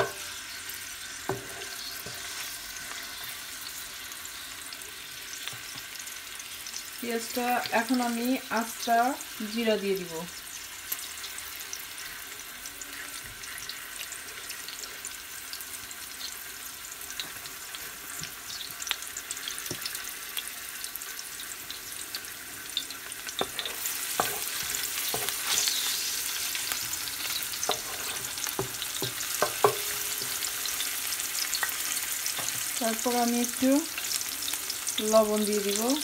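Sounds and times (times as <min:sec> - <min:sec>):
onions sizzling in hot oil: 0:00.0 - 0:36.0
spatula scraping metal pot: 0:23.4 - 0:26.6, 0:27.3 - 0:30.5.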